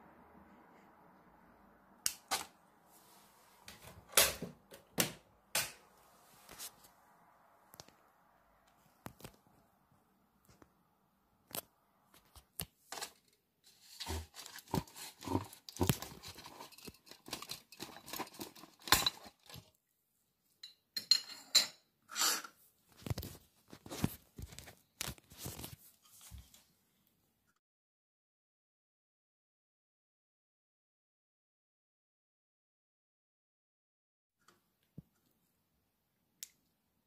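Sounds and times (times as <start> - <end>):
lamps clicking on tile: 3.8 - 5.9
plastic sheet crinkling: 12.9 - 19.7.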